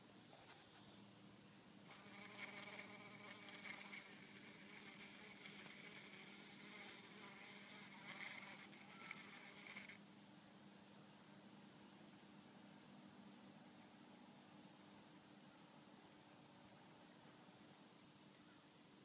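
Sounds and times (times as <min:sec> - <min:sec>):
bumblebee buzzing: 0:01.9 - 0:10.0.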